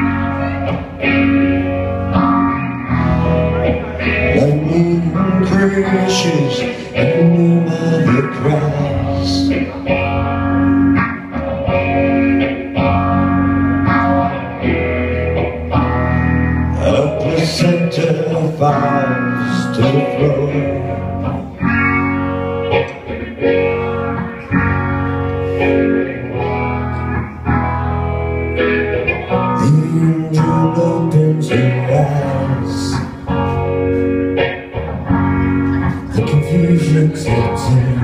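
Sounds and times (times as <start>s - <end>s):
electric guitar: 0.0s - 38.0s
person singing lead vocal: 2.9s - 10.5s, 16.0s - 22.0s, 29.2s - 33.9s, 35.4s - 38.0s.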